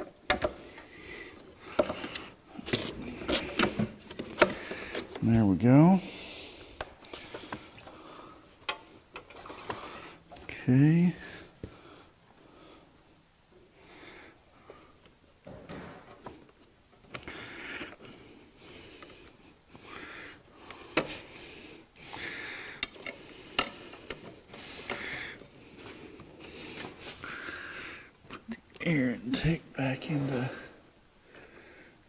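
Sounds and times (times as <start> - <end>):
rubbing and scraping of plastic parts: 0.0 - 5.4, 6.7 - 10.5.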